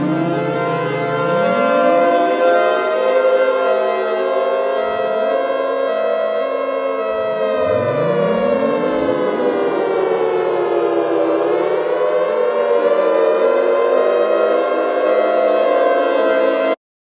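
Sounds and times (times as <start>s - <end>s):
siren-like wailing drone: 0.0s - 16.8s.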